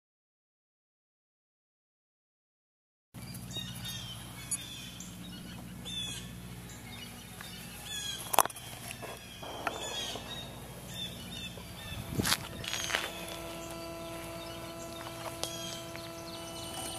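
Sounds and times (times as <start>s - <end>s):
birds chirping and singing: 3.2s - 16.9s
low hum: 9.3s - 16.9s.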